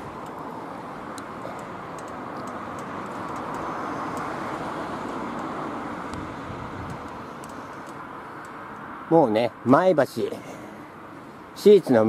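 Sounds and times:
vehicle passing on road: 0:00.0 - 0:12.0.

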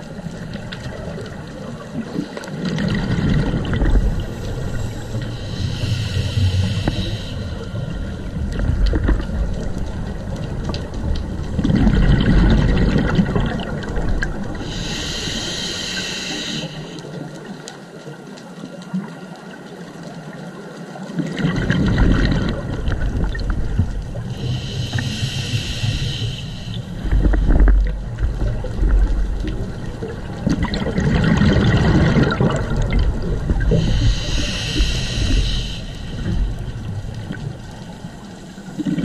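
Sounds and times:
exhaled bubbles gushing: 0:00.0 - 0:05.6, 0:07.9 - 0:14.9, 0:21.1 - 0:24.7, 0:27.0 - 0:35.4, 0:36.2 - 0:39.0
regulator inhale hiss: 0:04.1 - 0:08.4, 0:14.6 - 0:17.3, 0:24.2 - 0:27.7, 0:33.6 - 0:37.0.

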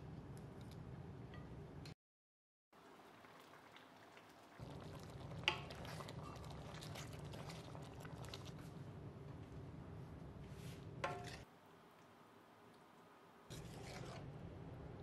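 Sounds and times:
sauce bubbling in a pan: 0:02.8 - 0:08.8.

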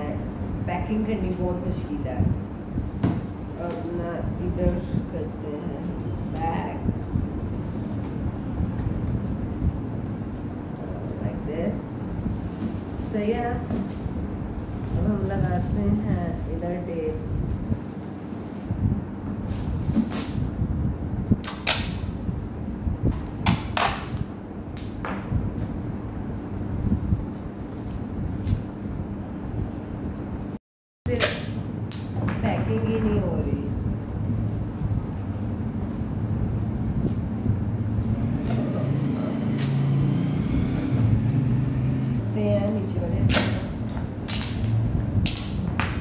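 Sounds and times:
foil wrapping paper crinkling: 0:08.7 - 0:20.4
adhesive tape ripping: 0:21.4 - 0:22.1, 0:38.4 - 0:42.2, 0:43.3 - 0:45.6
low engine-like hum: 0:31.7 - 0:45.8.

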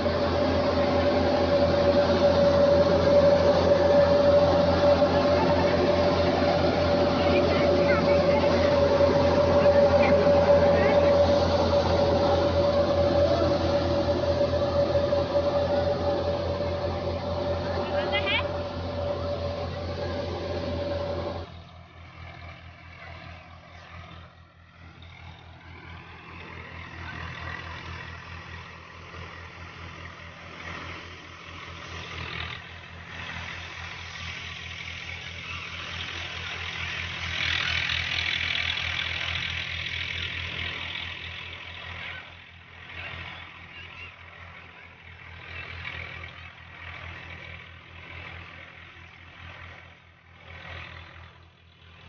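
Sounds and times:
loud rushing noise: 0:00.0 - 0:21.5
high steady drone: 0:00.0 - 0:49.9
thresher engine thrum: 0:00.0 - 0:52.0.

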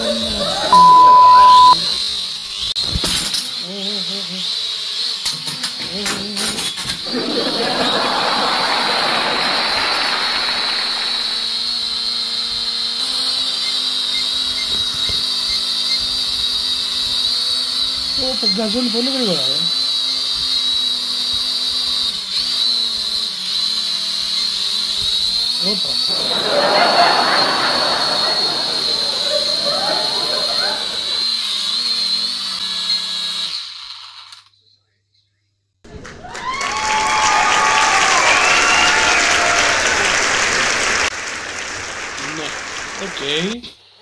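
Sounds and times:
toy drone motors whining: 0:00.0 - 0:34.7
propeller air rush: 0:07.1 - 0:11.6, 0:26.1 - 0:31.3.

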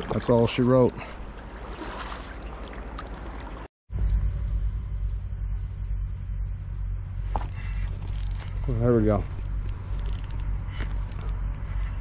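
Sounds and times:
kayak paddle water wash: 0:00.0 - 0:03.7
light metallic clatter: 0:07.3 - 0:12.0.

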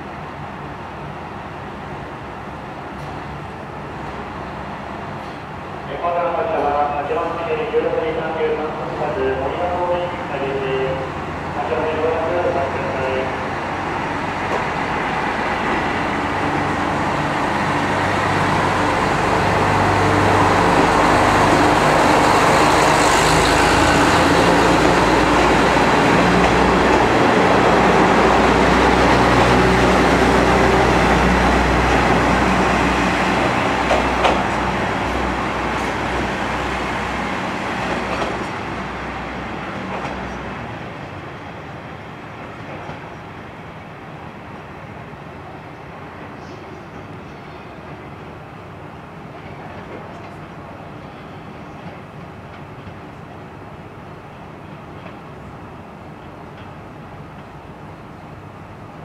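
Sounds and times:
diesel railcar engine: 0:00.0 - 0:59.0
train wheels clicking on rails: 0:14.0 - 0:38.8, 0:56.2 - 0:57.6.

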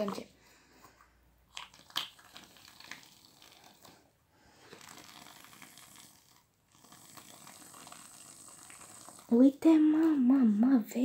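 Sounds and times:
aerosol foam can hissing: 0:04.7 - 0:09.4.

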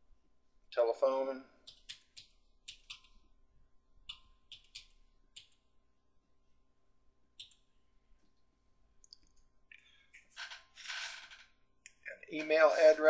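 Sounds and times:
computer keyboard typing: 0:01.6 - 0:03.4, 0:04.0 - 0:05.7, 0:07.4 - 0:07.7.

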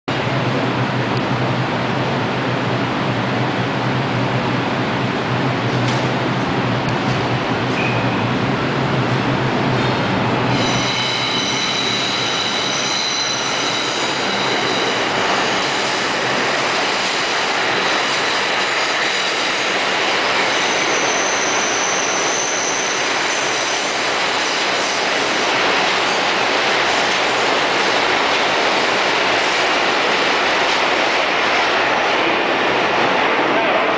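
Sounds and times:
subway train rumbling: 0:00.1 - 0:33.9
high wheel squeal: 0:10.5 - 0:16.5, 0:20.4 - 0:24.1.

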